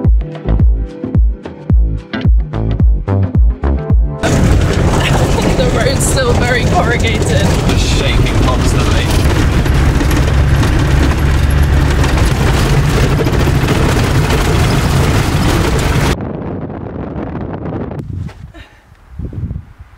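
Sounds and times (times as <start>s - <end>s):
car cabin rumble: 4.2s - 16.2s.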